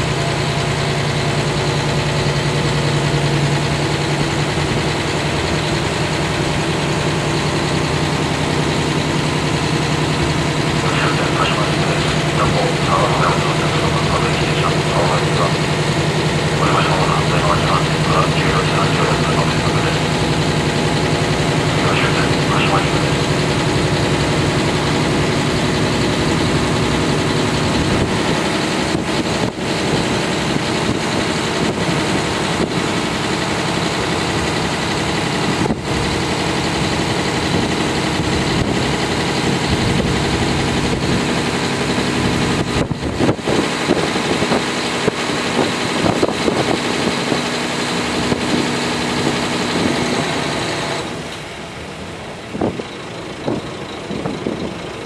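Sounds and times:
railcar engine drone: 0:00.0 - 0:55.0
wheel and track noise: 0:00.0 - 0:55.0.

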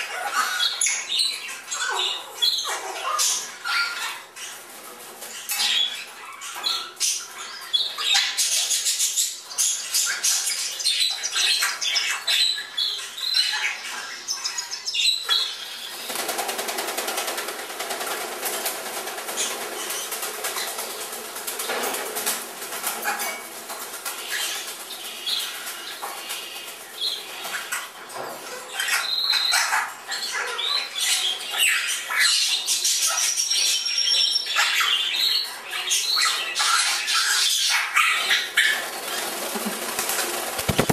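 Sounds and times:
parrots squawking and chirping: 0:00.0 - 0:16.2, 0:22.8 - 0:40.9
parrots flapping wings: 0:15.8 - 0:27.8, 0:38.7 - 0:40.9.

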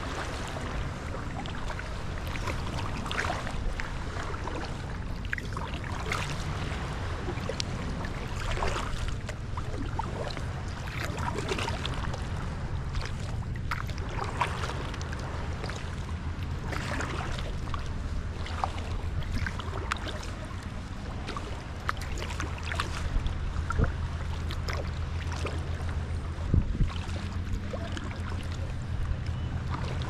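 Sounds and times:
kayak paddle strokes in water: 0:00.0 - 0:30.0
low rumble: 0:00.0 - 0:30.0
water splashing and dripping: 0:00.0 - 0:30.0.

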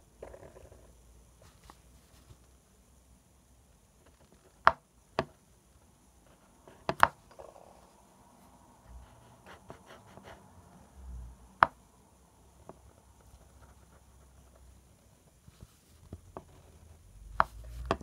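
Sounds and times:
pen scratching on paper: 0:08.9 - 0:10.5.

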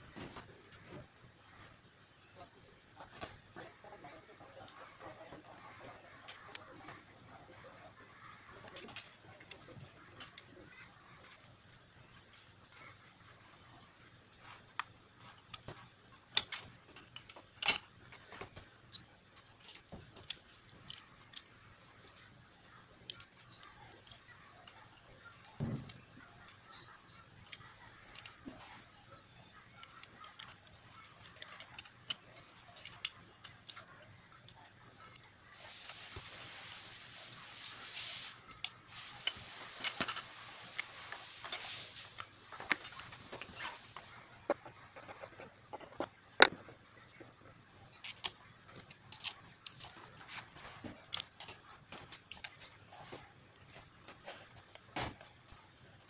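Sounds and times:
small parts clicking and tapping: 0:00.1 - 0:56.0
tools clicking on plastic: 0:29.6 - 0:35.4, 0:48.0 - 0:55.5
steady hiss: 0:35.4 - 0:44.2.

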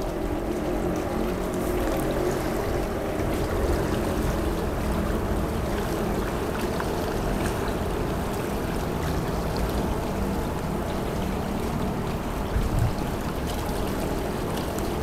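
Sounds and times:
small water splashes: 0:00.0 - 0:15.0
water lapping against bank: 0:00.0 - 0:15.0.

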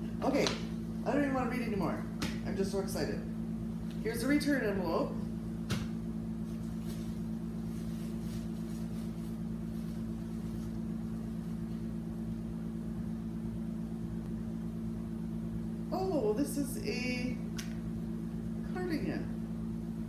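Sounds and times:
low machine hum: 0:00.0 - 0:20.0
rustling of paper and cloth: 0:06.4 - 0:11.6.

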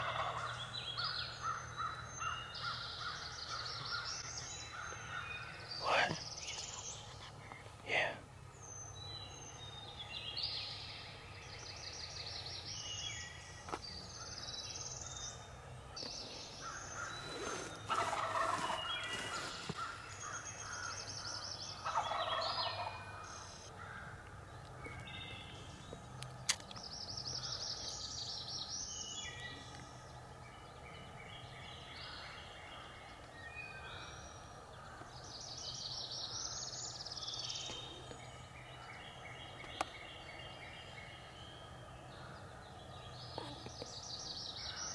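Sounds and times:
turkey gobbling: 0:00.0 - 0:00.5, 0:17.9 - 0:19.4, 0:21.8 - 0:23.0
songbirds singing: 0:00.0 - 0:44.9.

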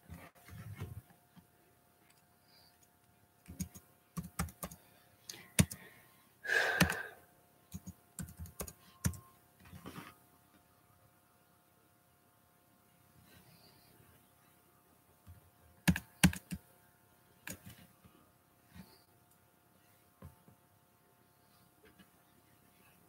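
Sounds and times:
keyboard typing clicks: 0:03.4 - 0:05.8, 0:06.8 - 0:07.0, 0:07.7 - 0:09.2, 0:15.8 - 0:16.6.

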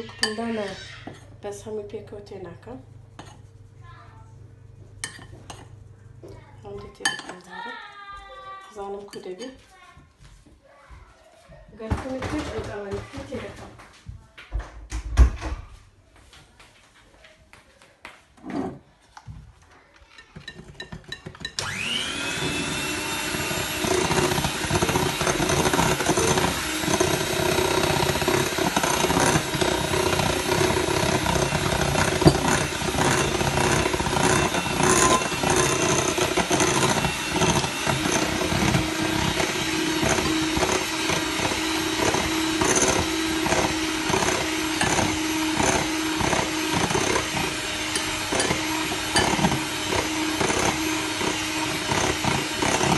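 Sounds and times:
mixer beaters clattering: 0:11.7 - 0:13.9, 0:19.6 - 0:52.9
electric mixer motor running: 0:21.6 - 0:52.9.

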